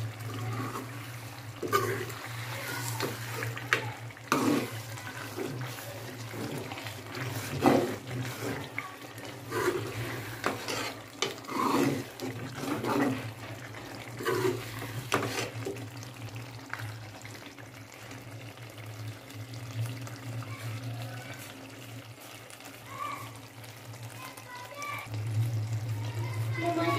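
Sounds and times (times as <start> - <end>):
spoon stirring thick curry: 0.1 - 15.8.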